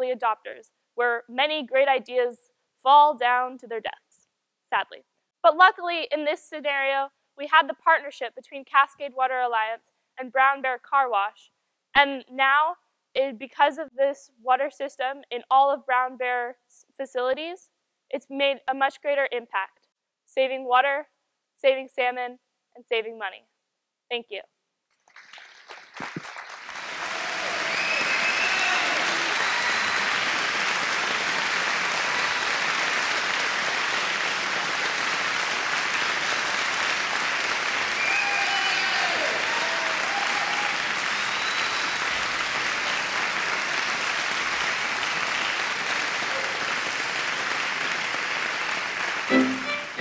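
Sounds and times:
audience applauding: 0:25.0 - 0:50.0.

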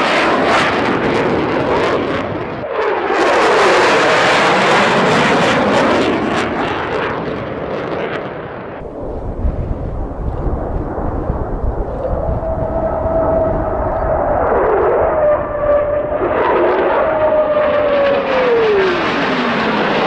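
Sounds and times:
fighter jets roaring past: 0:00.0 - 0:20.0.

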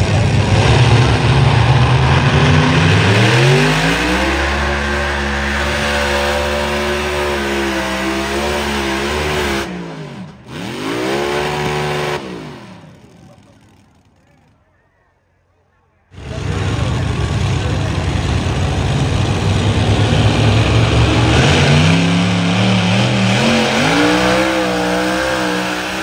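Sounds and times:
tractor engine at full throttle: 0:00.0 - 0:15.0, 0:16.1 - 0:26.0.

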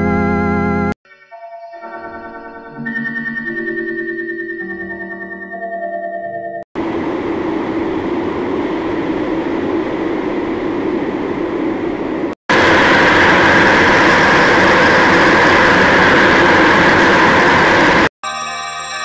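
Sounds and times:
harsh distorted rushing noise: 0:06.8 - 0:18.1.

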